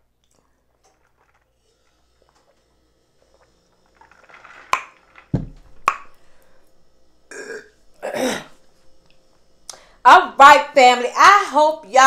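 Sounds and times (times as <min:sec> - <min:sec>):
woman burping: 0:07.3 - 0:08.6.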